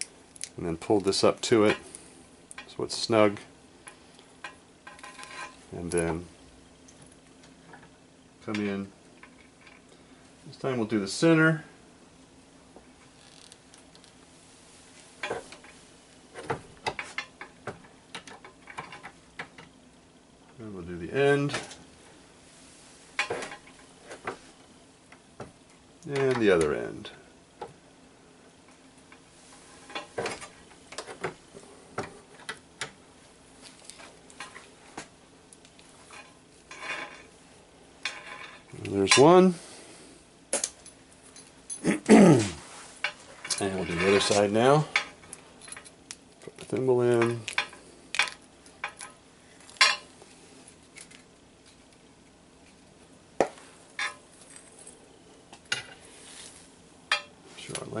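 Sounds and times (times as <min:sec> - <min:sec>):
short rustle: 0:56.0 - 0:56.7.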